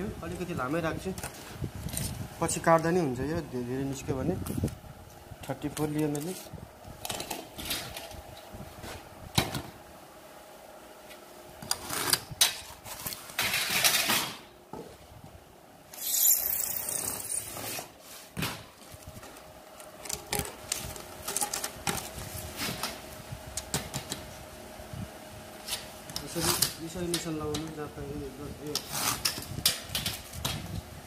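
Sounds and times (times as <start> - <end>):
foam panels scraping and rubbing: 11.6 - 14.4, 16.0 - 19.4, 25.6 - 26.8, 28.8 - 30.6.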